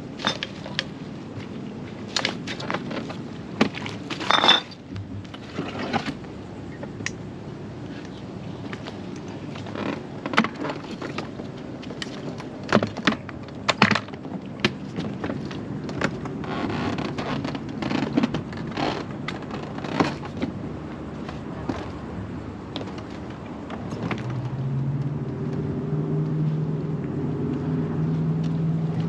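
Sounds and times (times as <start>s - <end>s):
gear handled in dinghy: 0.0s - 7.2s, 7.8s - 25.8s
scooter clicks and knocks: 12.0s - 20.5s.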